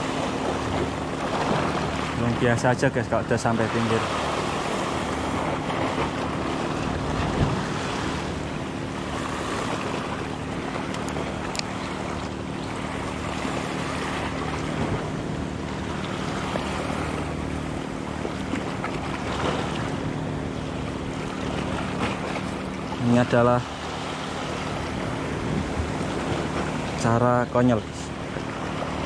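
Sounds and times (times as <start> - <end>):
wind on microphone: 0.0 - 10.2, 13.4 - 15.5, 24.4 - 27.0
steady low hum: 0.0 - 29.0.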